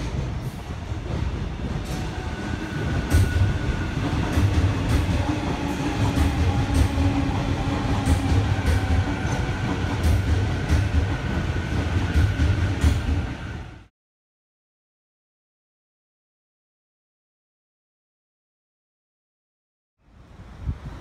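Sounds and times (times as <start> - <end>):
electric train rumbling: 0.0 - 13.9, 20.1 - 21.0
train wheels clacking: 0.0 - 13.9.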